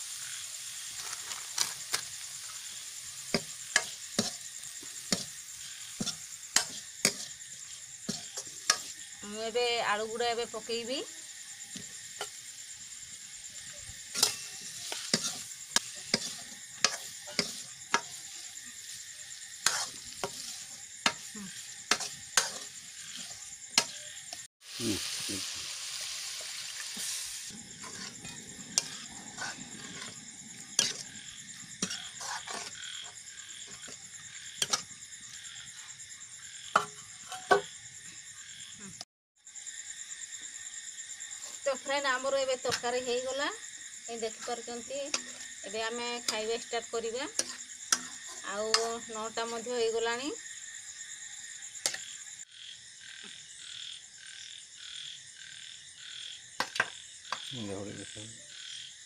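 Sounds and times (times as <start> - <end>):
water hissing in hot pan: 0.0 - 38.3, 39.6 - 52.4
food sizzling: 0.0 - 39.0, 39.6 - 52.4
night insects chirring: 0.0 - 59.0
ladle scraping a metal pan: 14.1 - 19.0, 19.6 - 24.0, 27.0 - 31.1, 31.8 - 32.8, 47.4 - 48.9.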